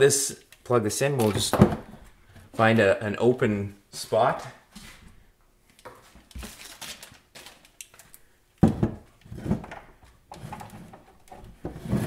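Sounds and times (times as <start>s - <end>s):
plastic clicks and clatter: 5.7s - 8.2s.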